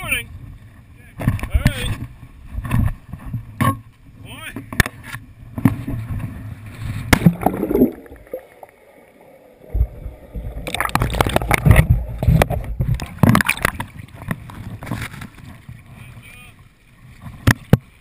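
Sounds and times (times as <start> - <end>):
water bubbling and splashing: 5.5 - 16.1.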